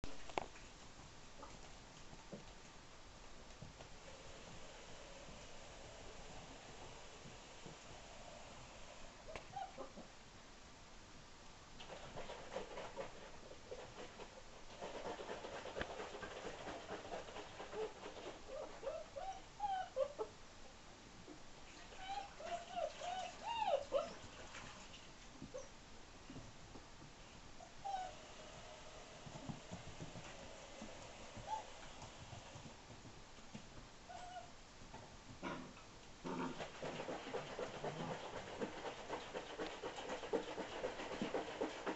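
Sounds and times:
puppy whining: 9.3 - 10.1, 18.5 - 20.3, 21.9 - 24.3, 25.5 - 25.8, 27.6 - 28.2, 31.4 - 32.1, 34.1 - 34.5
puppies yipping and growling: 22.0 - 24.3.

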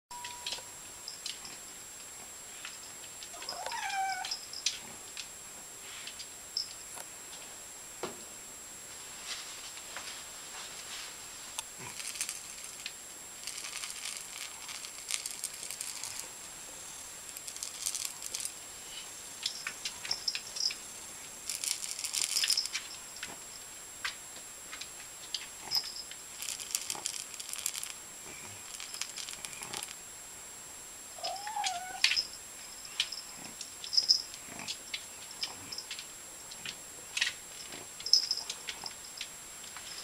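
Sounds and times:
cat meow: 3.4 - 4.4, 31.2 - 32.2
light rattling and crinkling: 21.5 - 24.2.

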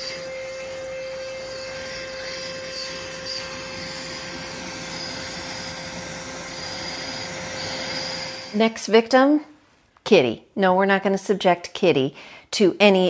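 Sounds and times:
grooming vacuum humming and whining: 0.0 - 8.6.

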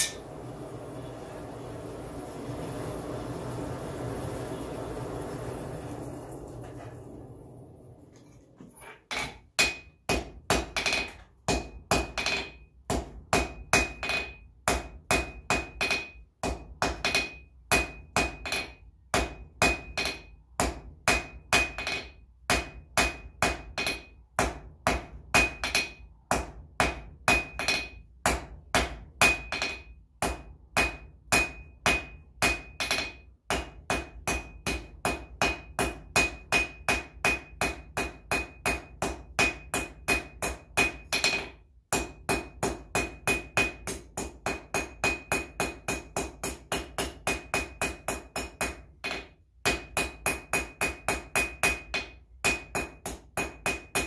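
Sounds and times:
hammer ringing on anvil: 13.4 - 54.0.

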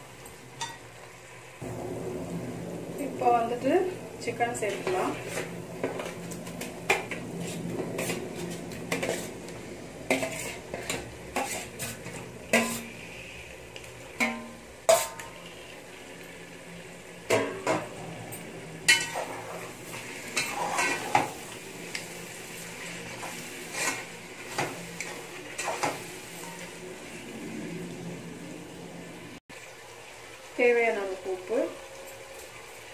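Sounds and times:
spatula clinking on metal pot: 14.2 - 15.3, 18.9 - 19.3.

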